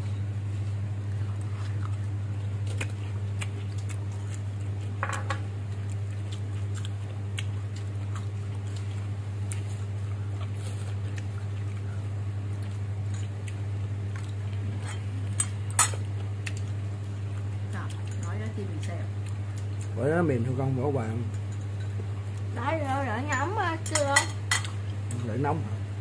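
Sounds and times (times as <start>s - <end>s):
steady low hum: 0.0s - 26.0s
eating sounds: 1.0s - 5.0s, 5.6s - 20.0s.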